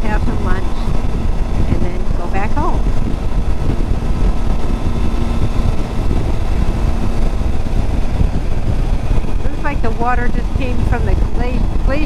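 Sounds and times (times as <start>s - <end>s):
motorcycle engine running: 0.0s - 12.0s
wind rumble on microphone: 0.0s - 12.0s.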